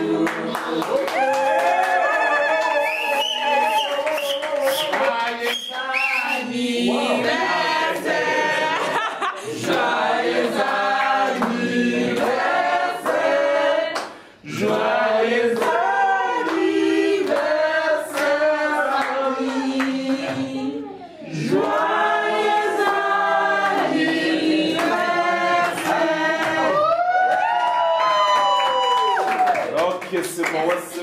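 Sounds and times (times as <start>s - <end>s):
group singing in chorus: 0.0s - 1.0s, 3.8s - 26.9s
people clapping along: 0.0s - 20.7s, 21.3s - 31.0s.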